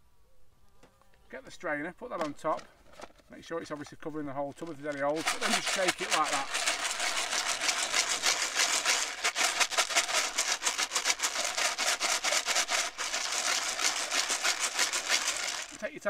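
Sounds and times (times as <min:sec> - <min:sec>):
pellets rattling in a tub: 0:02.2 - 0:16.0.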